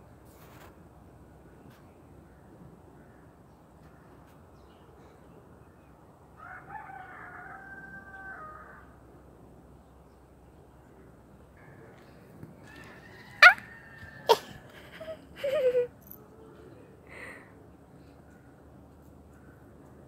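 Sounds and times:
drawn-out animal call: 12.6s - 15.3s.

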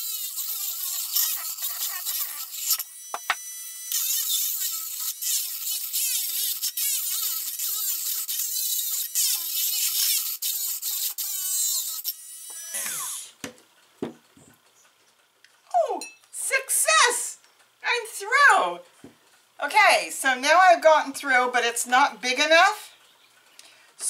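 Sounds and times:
rotary tool grinding ceramic: 0.0s - 13.3s
light knocks: 13.4s - 14.5s.

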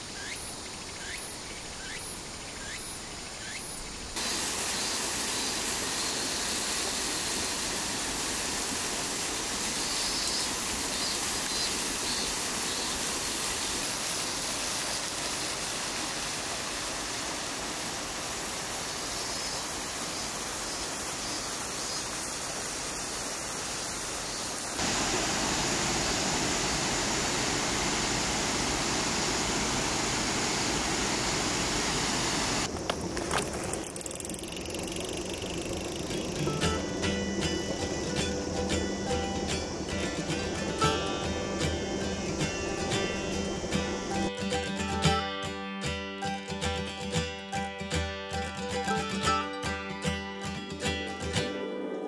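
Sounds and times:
faint insect chirps: 0.0s - 44.3s
water rushing: 4.0s - 44.3s.

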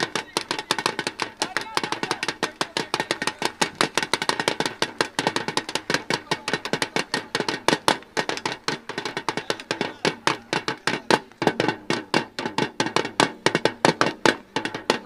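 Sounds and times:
drum beaten fast: 0.0s - 15.0s.

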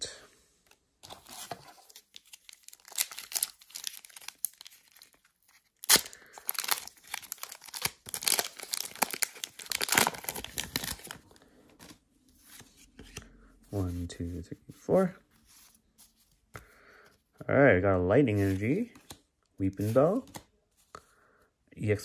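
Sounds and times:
cards rustling: 0.7s - 17.2s, 18.3s - 20.9s
foil wrapper crinkling: 2.1s - 11.2s
wrapper tearing with crackling: 2.2s - 11.2s.

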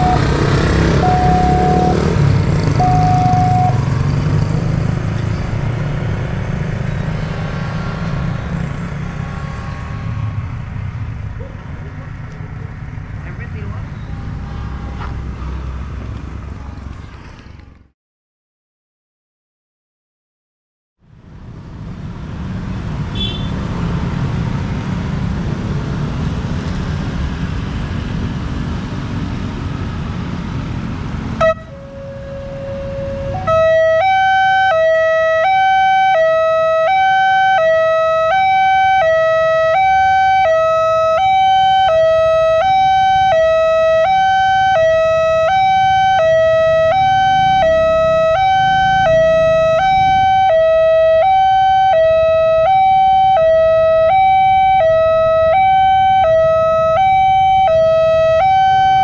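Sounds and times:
level crossing warning alarm: 0.0s - 4.0s, 31.4s - 59.0s
road traffic noise: 0.0s - 18.0s, 21.0s - 59.0s.

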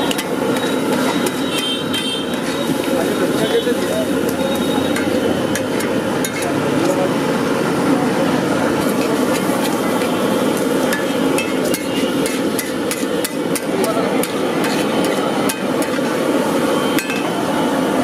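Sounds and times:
metal spatula clacking on griddle: 0.0s - 3.0s, 3.8s - 6.6s, 8.8s - 16.0s.

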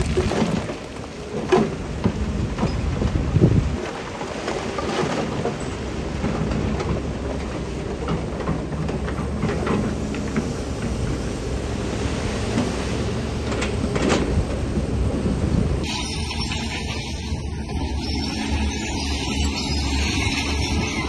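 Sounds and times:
clanks and rattles: 0.0s - 11.4s
diesel machinery running: 0.0s - 21.0s.

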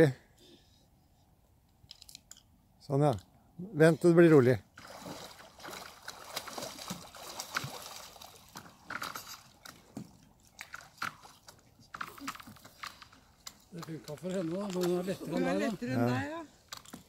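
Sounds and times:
lake water sloshing: 4.6s - 17.0s
ice picks clicking and scraping: 11.9s - 15.7s, 16.6s - 17.0s.

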